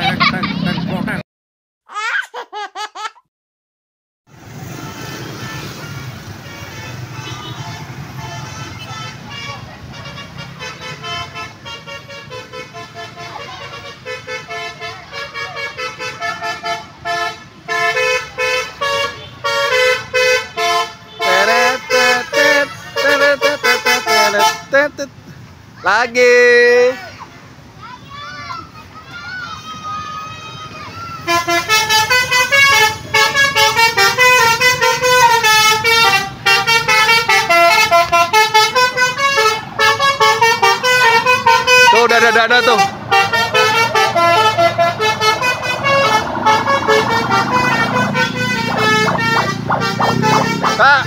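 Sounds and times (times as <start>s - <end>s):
bus air horn melody: 4.7s - 25.1s, 31.2s - 51.0s.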